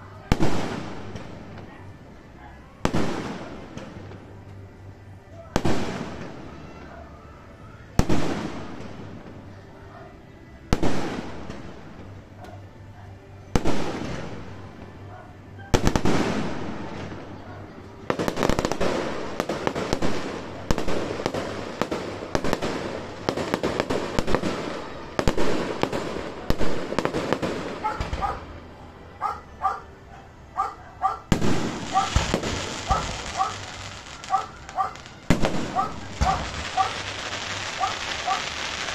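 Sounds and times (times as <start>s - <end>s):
fireworks shells bursting: 31.4s - 38.9s.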